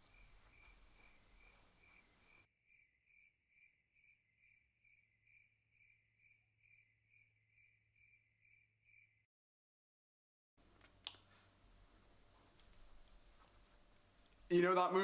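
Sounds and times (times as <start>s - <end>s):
crickets chirping: 0.0s - 9.2s.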